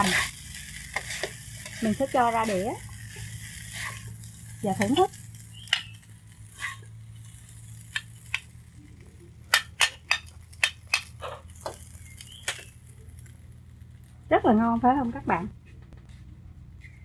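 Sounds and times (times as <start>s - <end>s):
spatula clicking and scraping: 0.0s - 8.5s.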